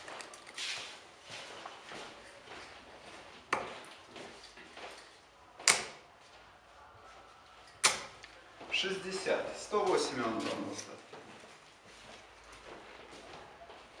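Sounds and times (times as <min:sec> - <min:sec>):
darts thudding into dartboard: 0:05.6 - 0:06.0, 0:07.8 - 0:08.2.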